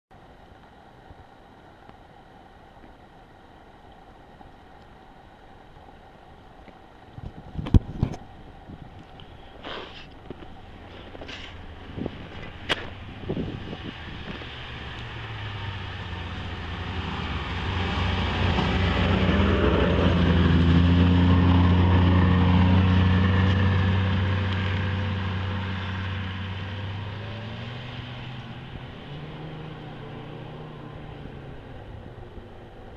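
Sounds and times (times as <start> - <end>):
snowmobile engine passing by: 10.8 - 32.8.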